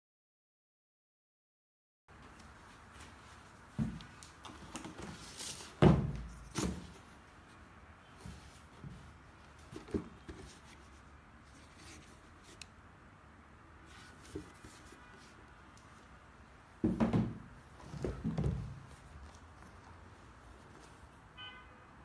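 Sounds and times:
soft knocks: 0:16.8 - 0:18.8.

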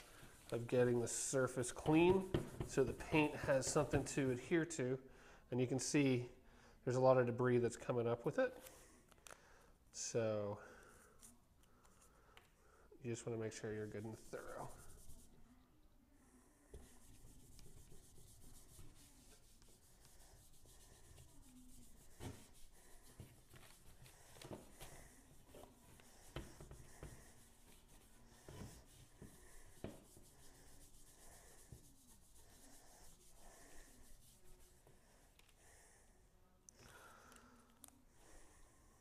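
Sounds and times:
wipe swishing over surface: 0:13.4 - 0:15.4, 0:16.8 - 0:35.0.

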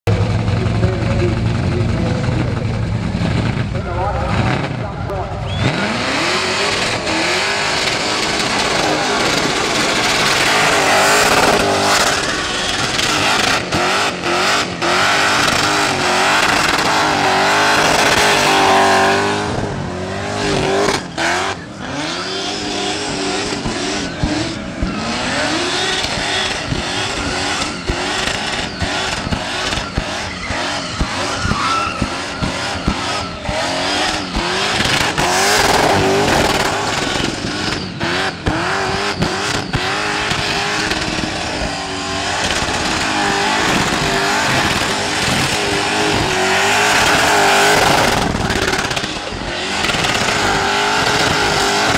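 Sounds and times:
car engine revving: 0:00.0 - 0:51.9
tyres screeching: 0:05.4 - 0:51.9.

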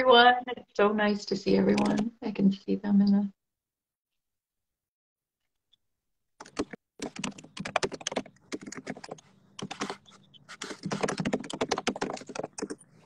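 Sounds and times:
computer keyboard typing: 0:01.7 - 0:02.1, 0:06.4 - 0:12.9.

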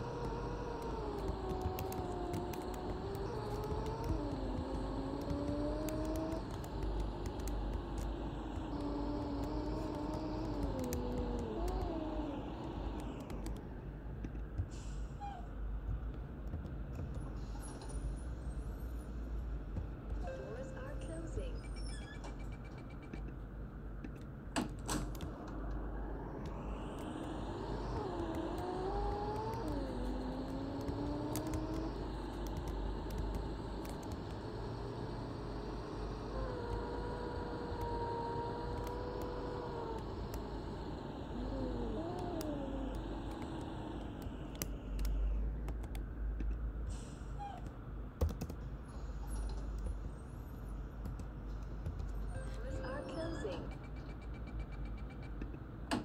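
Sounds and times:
bus engine rumble and whine: 0:00.0 - 0:56.0.

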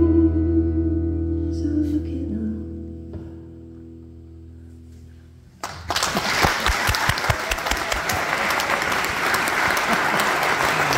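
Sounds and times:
audience applauding: 0:05.6 - 0:10.9.

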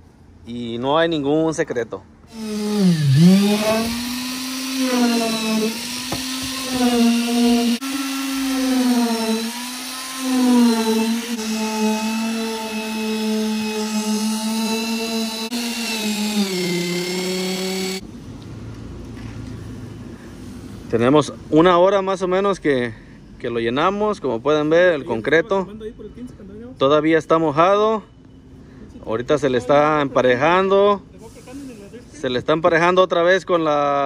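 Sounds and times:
concrete vibrator motor hum: 0:02.3 - 0:18.0.

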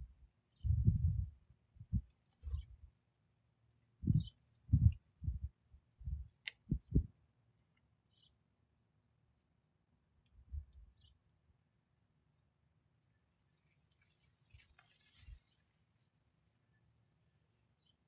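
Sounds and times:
small birds chirping: 0:00.0 - 0:02.9, 0:03.6 - 0:18.0
dull low thumps: 0:00.6 - 0:02.7, 0:04.0 - 0:07.1.

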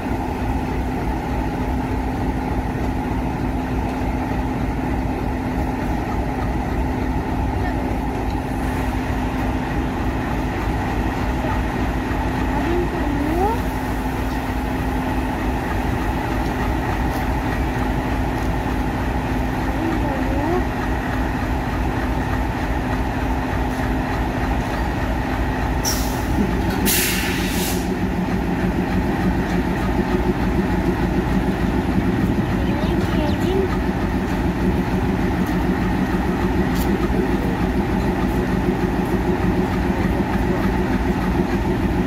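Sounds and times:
diesel locomotive engine idling: 0:00.0 - 0:42.0
short hisses: 0:26.9 - 0:27.9.

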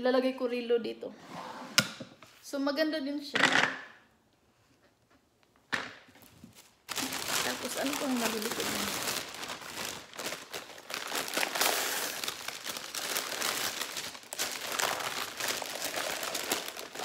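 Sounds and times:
paper wrapping crinkling: 0:06.2 - 0:17.0.

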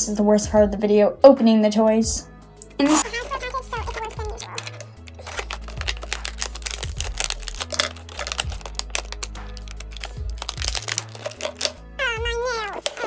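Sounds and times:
background music with bass: 0:00.0 - 0:13.0
plastic blister pack crackling: 0:02.8 - 0:13.0.

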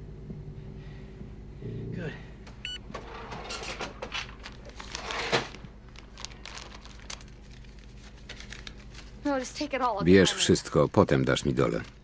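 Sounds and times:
paper crinkling and rustling: 0:03.5 - 0:09.4.

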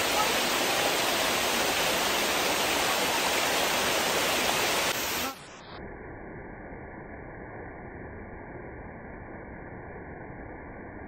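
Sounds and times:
waterfall rushing over rock: 0:00.0 - 0:05.6.

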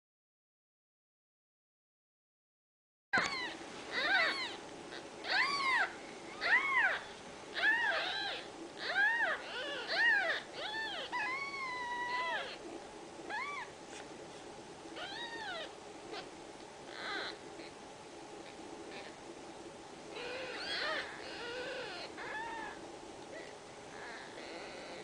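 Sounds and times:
kittens mewing: 0:03.2 - 0:13.8, 0:15.0 - 0:16.3, 0:16.9 - 0:17.8, 0:20.2 - 0:25.0.

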